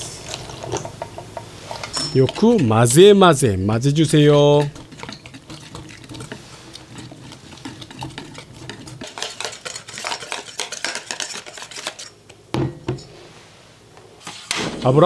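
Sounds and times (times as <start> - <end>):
whisk clicking against bowl: 4.6 - 12.0.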